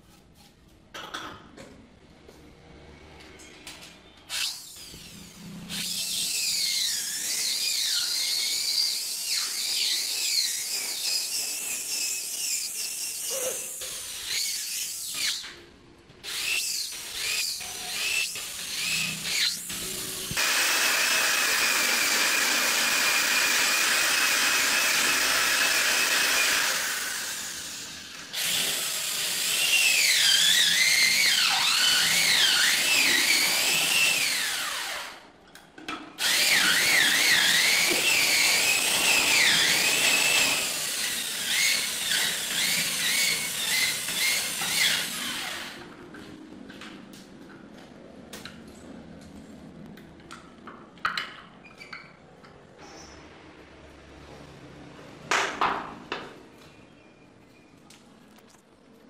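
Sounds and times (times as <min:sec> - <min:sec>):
electric drill boring into wood: 0:05.7 - 0:15.4, 0:16.3 - 0:35.2, 0:36.2 - 0:45.9.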